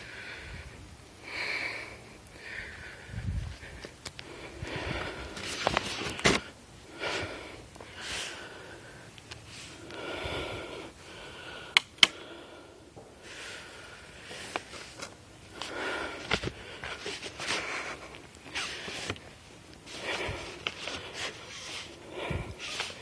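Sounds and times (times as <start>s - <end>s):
man breathing heavily: 0.0s - 23.0s
sharp cracks: 11.7s - 12.3s.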